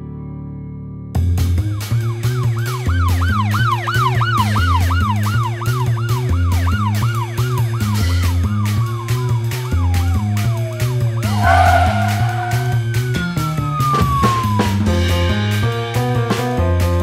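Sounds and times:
emergency siren wailing: 0:09.9 - 0:13.2.

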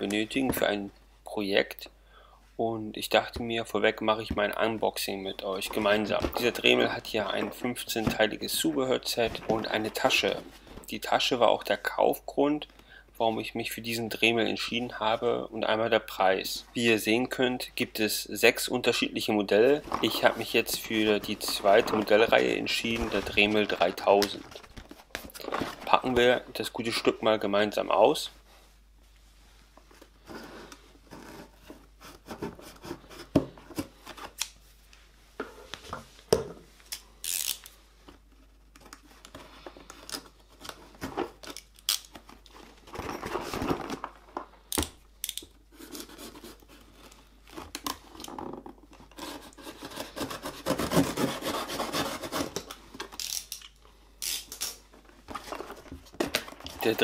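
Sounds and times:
box handling rubbing and knocks: 0:05.6 - 0:10.9, 0:19.7 - 0:26.3, 0:30.2 - 0:34.3, 0:47.6 - 0:52.8, 0:55.2 - 0:57.0
blade cutting cardboard and tape: 0:49.1 - 0:52.7.

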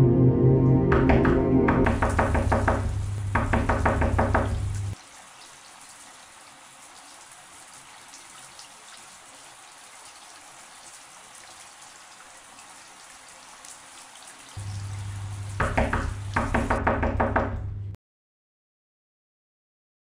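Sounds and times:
music: 0:00.0 - 0:02.9
shower running: 0:00.9 - 0:17.8.

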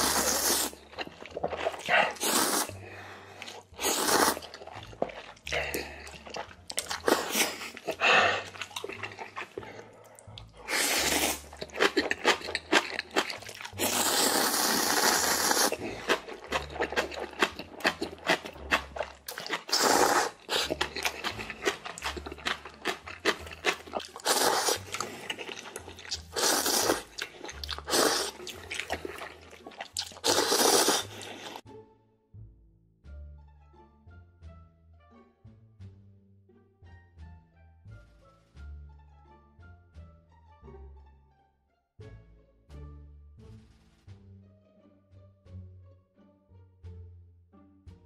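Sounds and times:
person slurping noodles: 0:00.0 - 0:31.6
wet chewing: 0:00.0 - 0:31.6.

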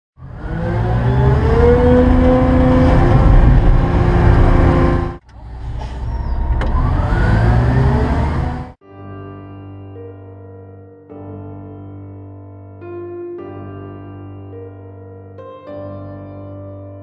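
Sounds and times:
diesel engine revving: 0:00.2 - 0:08.8.

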